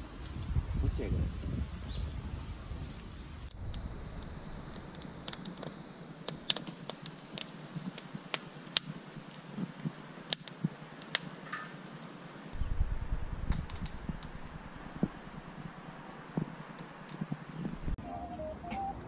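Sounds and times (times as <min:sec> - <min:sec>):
flame rushing: 0:00.1 - 0:18.0
low rumble: 0:00.2 - 0:07.1, 0:12.6 - 0:18.0
firewood crackling and popping: 0:02.6 - 0:18.0.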